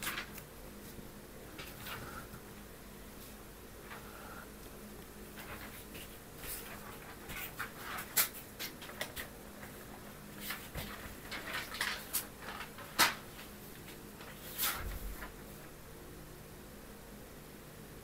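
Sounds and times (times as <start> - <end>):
book pages rustling: 0.0 - 2.4, 5.3 - 15.4.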